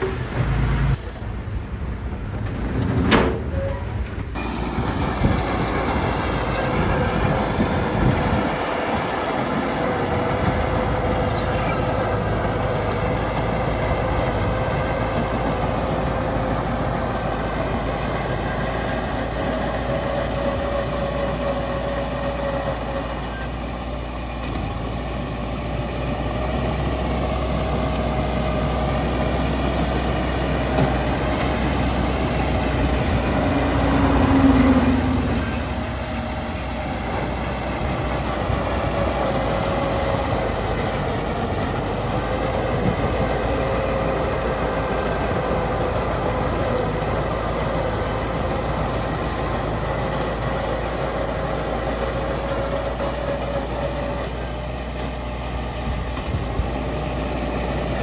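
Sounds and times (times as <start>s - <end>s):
diesel engine rumbling: 0.0s - 58.0s.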